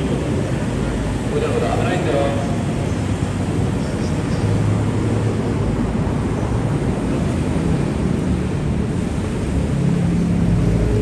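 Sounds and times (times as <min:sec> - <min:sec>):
road traffic rumble: 0:00.0 - 0:11.0
vehicle engine hum: 0:00.0 - 0:11.0.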